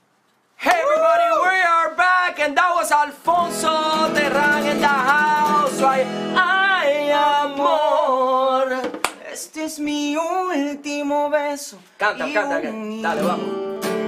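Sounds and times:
man singing: 0:00.6 - 0:14.0
acoustic guitar chord strummed: 0:02.5 - 0:08.9, 0:12.2 - 0:14.0.

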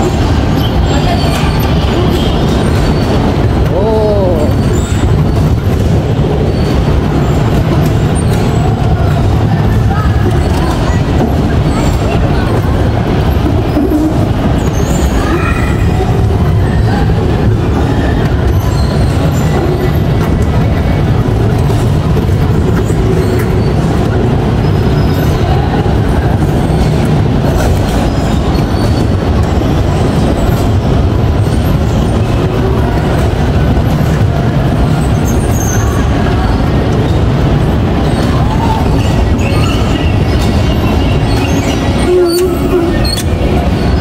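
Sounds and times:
bumper car motor rumbling: 0:00.0 - 0:44.0.

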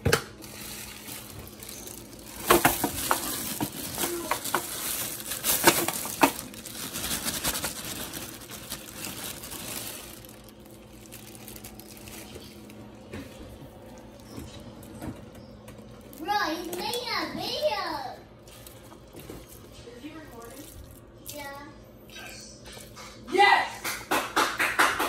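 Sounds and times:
foil pan crackling and clicking: 0:00.2 - 0:12.8
plastic bag crinkling: 0:00.3 - 0:14.9, 0:18.3 - 0:21.4.

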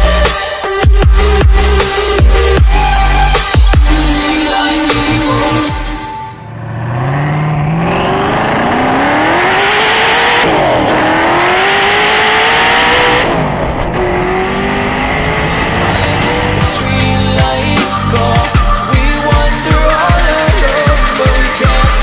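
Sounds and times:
car engine accelerating hard: 0:06.5 - 0:17.4.

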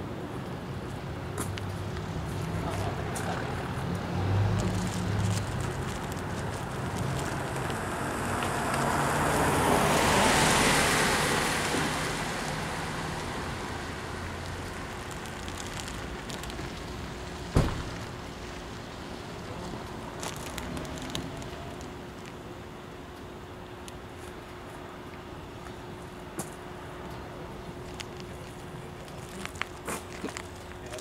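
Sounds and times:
car passing by: 0:06.8 - 0:14.8
sharp knock: 0:17.6 - 0:17.9.

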